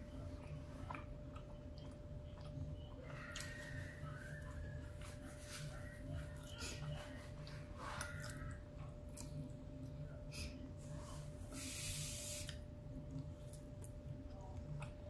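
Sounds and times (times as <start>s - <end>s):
faint steady hum: 0.0s - 15.0s
person chewing: 0.4s - 3.9s, 6.2s - 10.0s.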